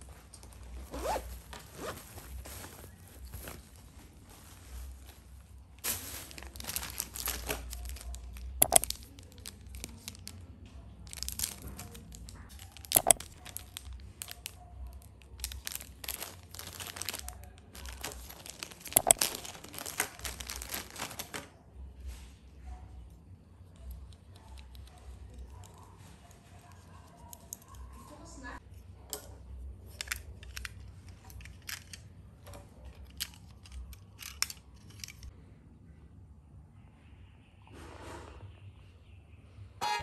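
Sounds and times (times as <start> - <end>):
plastic bags crinkling: 0.0 - 10.4, 11.0 - 21.5
sharp clicks: 8.6 - 9.0, 12.9 - 13.4, 19.0 - 19.2.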